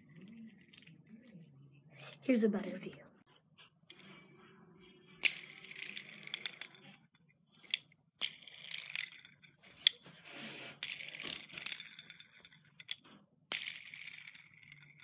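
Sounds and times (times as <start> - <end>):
plastic fidget spinner rattling: 0.0 - 1.3, 5.2 - 15.0.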